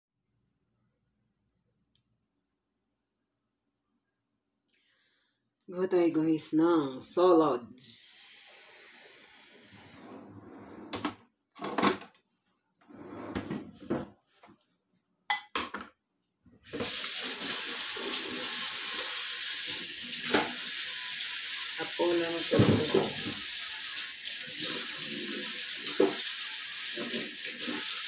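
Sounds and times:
tap water running into sink: 16.7s - 28.0s.

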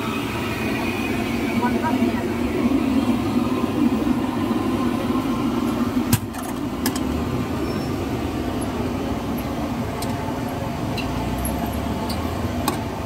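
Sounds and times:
busy food stall background noise: 0.0s - 13.0s.

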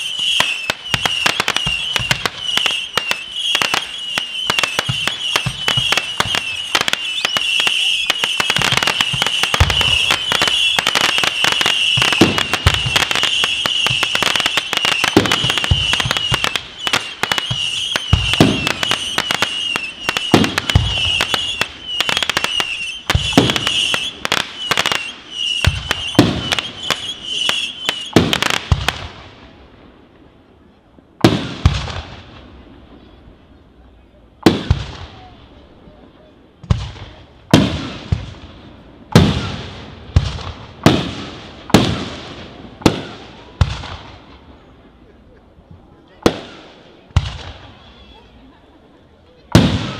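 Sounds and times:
high wavering whistle: 0.0s - 28.2s
firework bangs: 0.0s - 30.4s, 31.2s - 33.2s, 34.4s - 35.6s, 36.6s - 44.8s, 46.1s - 48.5s, 49.4s - 49.9s
fireworks crackling: 0.0s - 49.9s.

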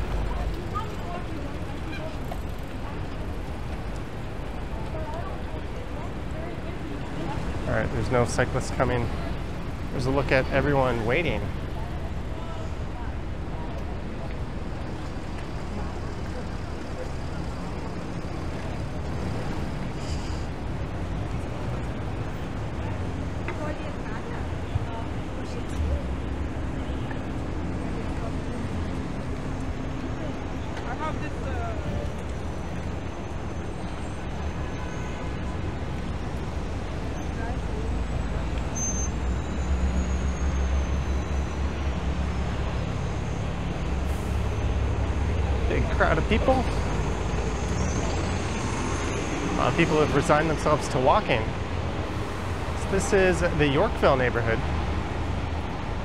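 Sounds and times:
city traffic rumble: 0.0s - 56.0s
hiss of road noise: 19.8s - 20.7s, 38.4s - 54.0s.

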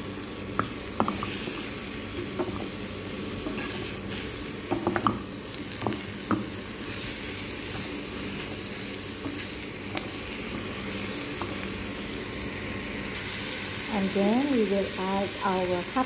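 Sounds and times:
vegetables sizzling in frying pan: 0.0s - 16.0s
spatula tapping pan: 4.7s - 5.2s.

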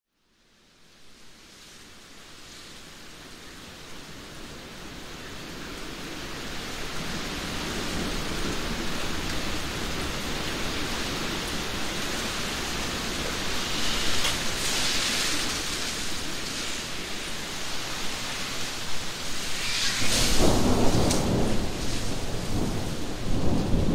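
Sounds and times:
heavy rain in a forest: 0.1s - 23.9s.

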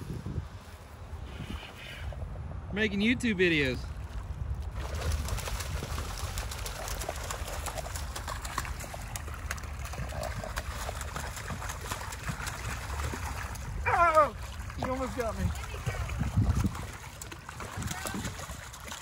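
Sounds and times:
water splashing: 3.9s - 19.0s.

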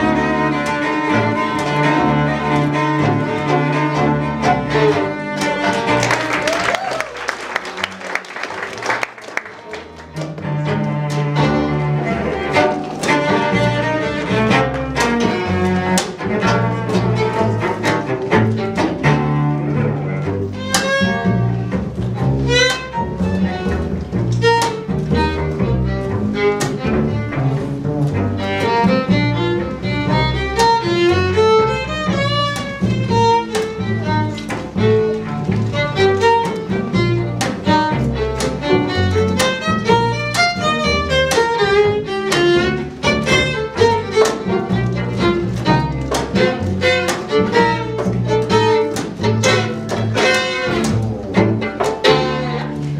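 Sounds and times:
string quartet playing: 0.0s - 52.9s.

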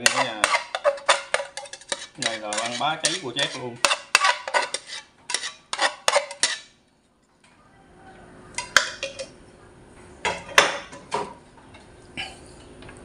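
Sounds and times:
kitchenware clinking: 0.0s - 6.8s, 8.6s - 9.4s, 10.2s - 11.9s
metal utensil scraping a frying pan: 0.0s - 6.8s.

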